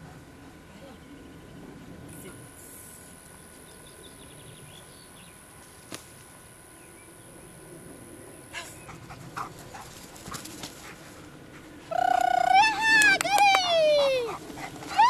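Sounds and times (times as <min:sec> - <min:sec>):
dog whining: 0:11.9 - 0:15.0.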